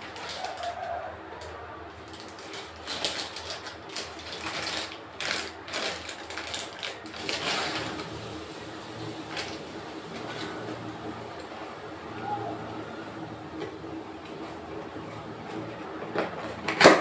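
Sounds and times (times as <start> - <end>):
plastic bag crinkling and tearing: 0.0 - 10.6.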